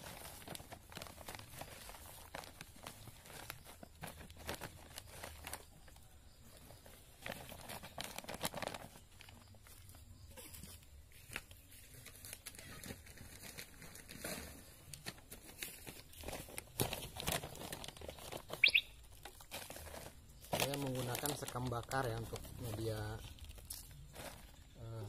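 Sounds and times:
plastic bags crinkling: 0.0s - 25.0s.

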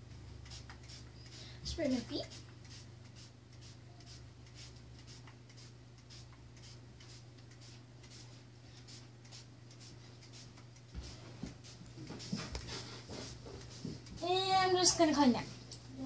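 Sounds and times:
spray bottle hissing: 0.4s - 12.6s.

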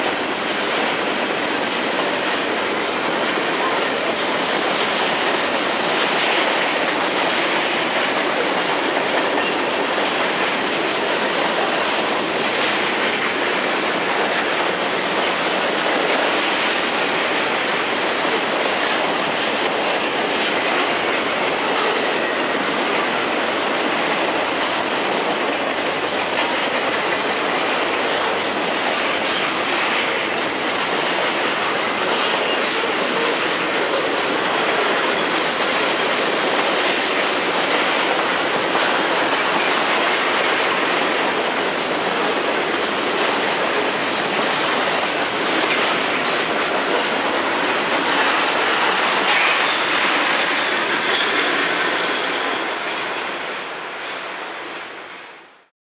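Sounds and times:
clickety-clack over rail joints: 0.0s - 55.6s
steel wheels rumbling on rails: 0.0s - 55.7s.

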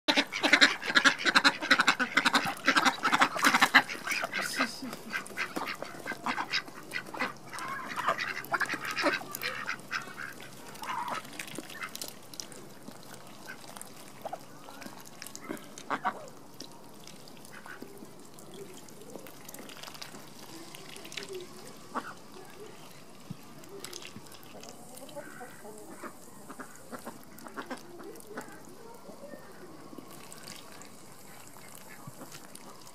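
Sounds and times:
ducks quacking: 0.1s - 12.1s, 15.3s - 16.3s, 21.2s - 22.6s, 24.3s - 28.7s.

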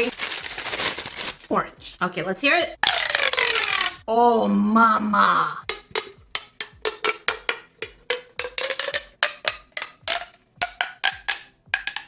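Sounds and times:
plastic pop tube popping: 2.8s - 4.0s, 5.7s - 12.0s.

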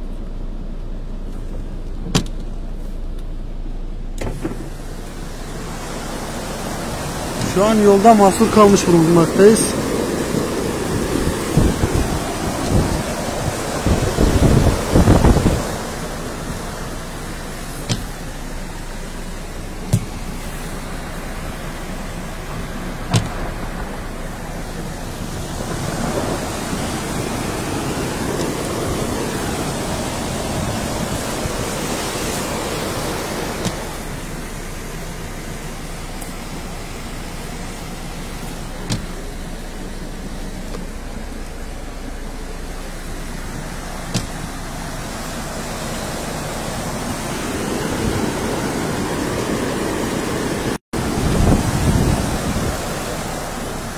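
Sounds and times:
flood water rushing: 4.2s - 53.9s
short knocks: 38.8s - 39.2s.

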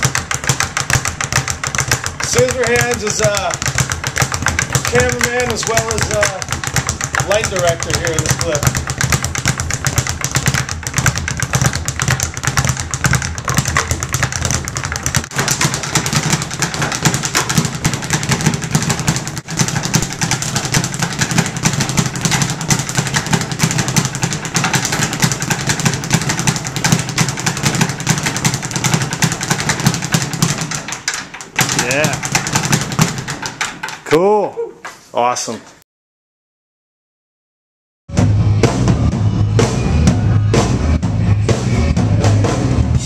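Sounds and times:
speed bag rapid rattle: 0.0s - 34.1s.

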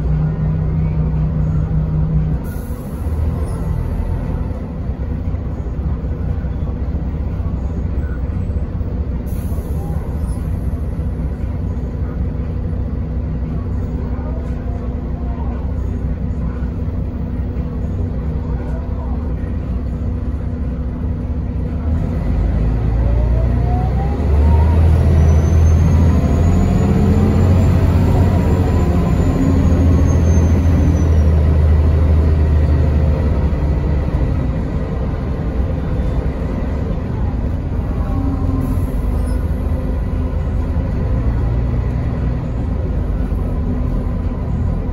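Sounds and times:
bus engine running: 0.0s - 44.9s.

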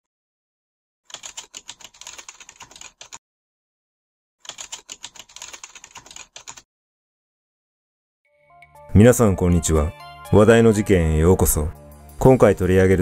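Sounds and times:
rapid keyboard typing: 1.1s - 3.2s, 4.4s - 6.7s.

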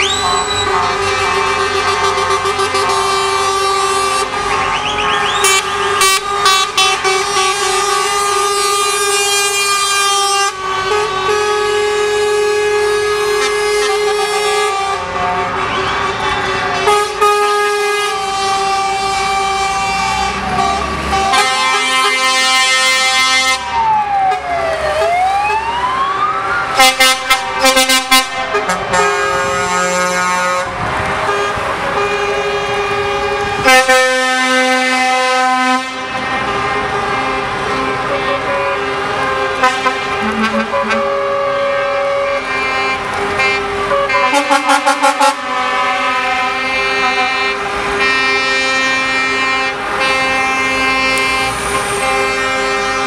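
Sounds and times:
truck air horns: 0.0s - 25.2s, 26.7s - 53.0s
siren gliding in pitch: 23.6s - 27.1s, 40.1s - 42.2s
short horn toots: 39.6s - 41.8s.

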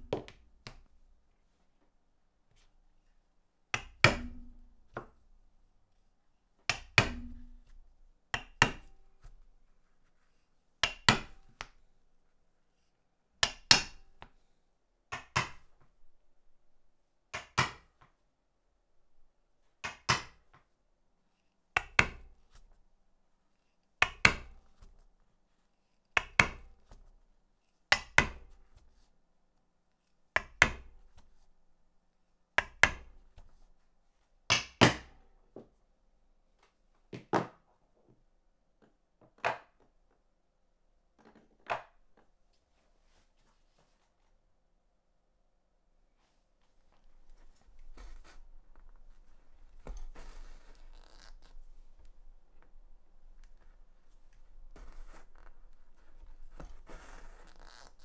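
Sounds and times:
mallet striking leatherworking tool: 0.0s - 0.9s, 3.8s - 5.2s, 6.7s - 9.0s, 10.8s - 11.7s, 13.4s - 14.0s, 15.1s - 15.7s, 17.3s - 17.9s, 19.8s - 20.4s, 21.8s - 22.4s, 24.0s - 24.9s, 27.9s - 28.6s, 30.4s - 30.9s, 34.5s - 35.2s.

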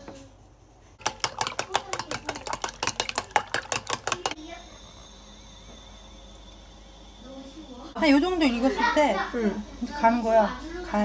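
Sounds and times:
frying pan hissing with high whine: 4.1s - 11.0s.

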